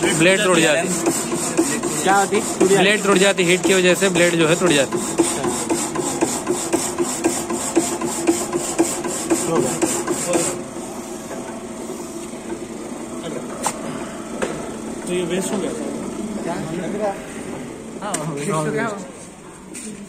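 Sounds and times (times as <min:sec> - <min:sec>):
hacksaw blade cutting strokes: 0:00.0 - 0:10.6
machine hum: 0:00.0 - 0:19.6.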